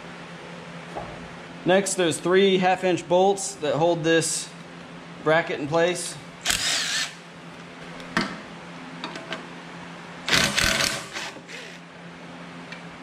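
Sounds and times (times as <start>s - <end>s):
cordless drill spinning: 6.4s - 7.2s, 10.3s - 11.8s.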